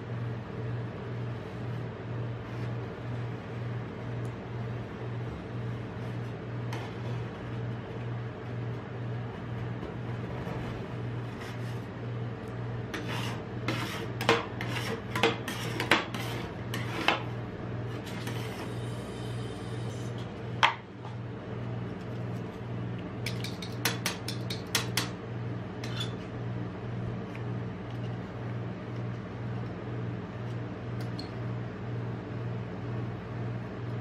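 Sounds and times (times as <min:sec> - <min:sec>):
steady low hum: 0:00.0 - 0:34.0.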